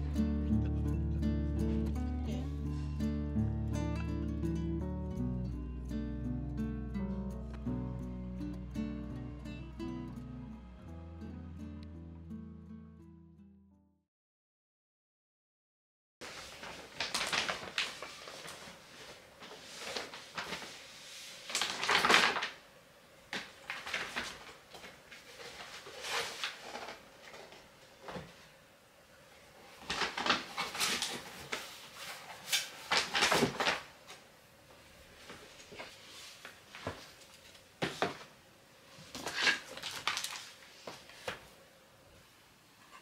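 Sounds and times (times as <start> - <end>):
plastic bag crinkling: 16.2 - 20.7, 21.4 - 22.6, 29.8 - 31.6, 39.2 - 40.8.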